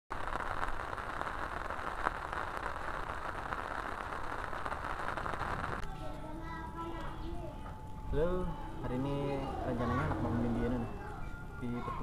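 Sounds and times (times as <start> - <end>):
faint crackles: 0.1 - 7.8.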